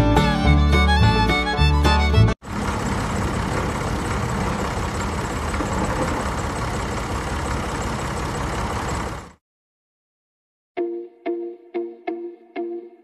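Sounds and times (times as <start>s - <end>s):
model tractor engine running: 2.4s - 9.4s.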